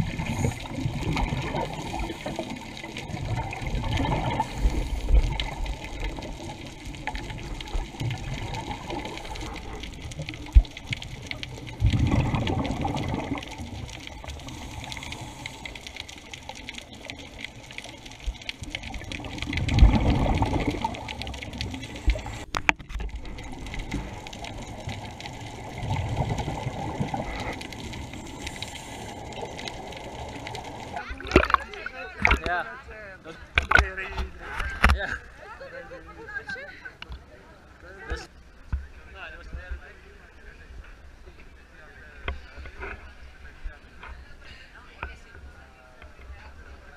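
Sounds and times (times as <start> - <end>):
diver exhaled breath bubbling: 0.0 - 17.5, 18.8 - 32.4
steady hiss: 0.0 - 31.1.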